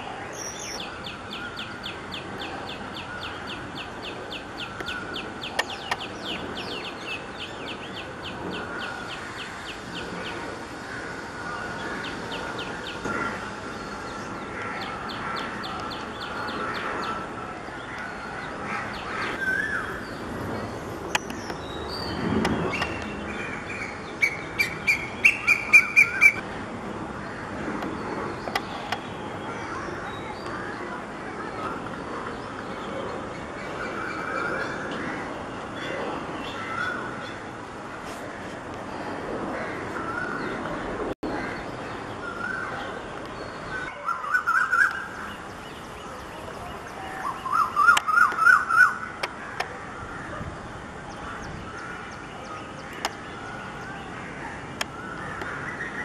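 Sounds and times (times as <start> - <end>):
sharp bird calls: 21.1 - 26.4, 41.3 - 50.4.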